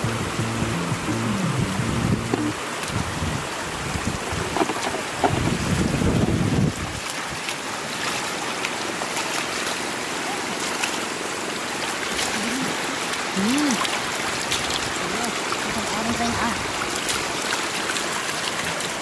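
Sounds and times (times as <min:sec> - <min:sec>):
floodwater rushing: 0:00.0 - 0:19.0
small splashes and drips: 0:06.8 - 0:19.0.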